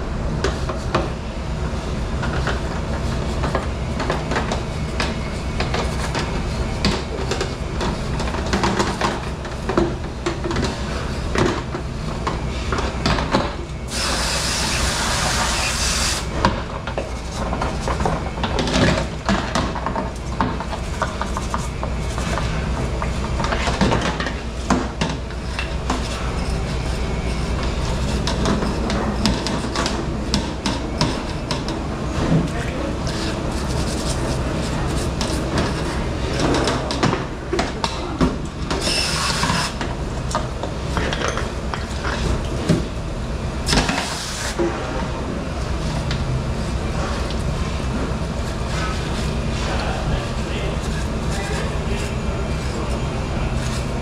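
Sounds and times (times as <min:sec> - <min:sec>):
kitchen machinery hum: 0:00.0 - 0:54.0
hiss: 0:13.9 - 0:16.3, 0:38.8 - 0:39.8, 0:43.8 - 0:44.6.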